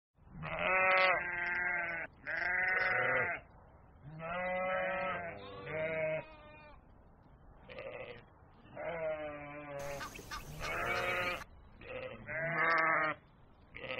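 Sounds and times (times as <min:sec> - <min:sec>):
goats bleating: 0:00.4 - 0:03.4, 0:08.8 - 0:13.2.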